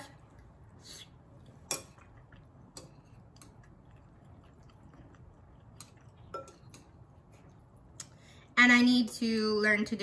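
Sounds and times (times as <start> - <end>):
person chewing food: 0.8 - 8.2.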